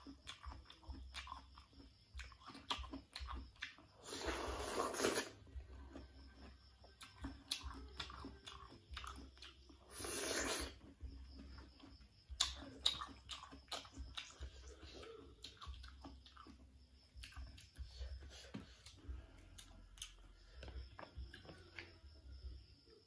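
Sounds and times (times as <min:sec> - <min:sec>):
person chewing crunchy fruit: 0:00.0 - 0:22.4
wet mouth clicks: 0:12.4 - 0:14.3.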